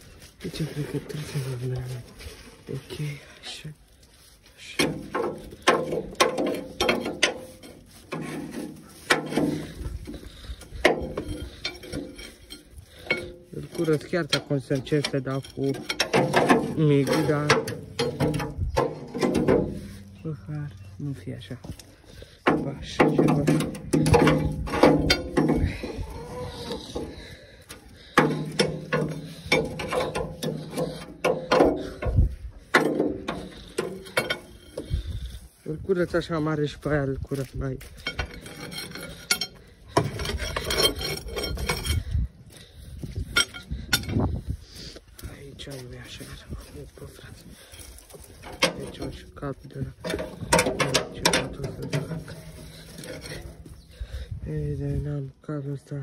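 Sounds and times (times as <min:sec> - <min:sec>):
metallic clanks of hand tools: 0:04.6 - 0:20.3, 0:22.4 - 0:35.4, 0:37.3 - 0:42.3, 0:43.0 - 0:44.3, 0:47.1 - 0:54.1.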